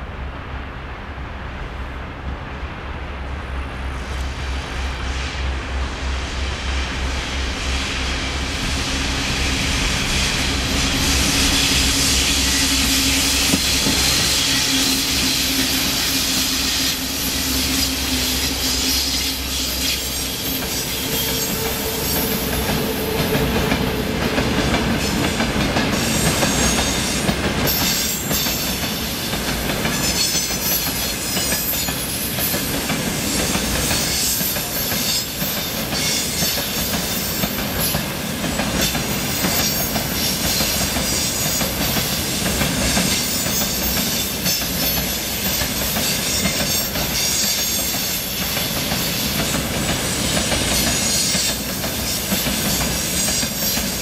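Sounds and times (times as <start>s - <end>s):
electric locomotives humming: 2.4s - 32.1s
train wheels clattering over rail joints: 11.1s - 17.0s, 17.6s - 54.0s.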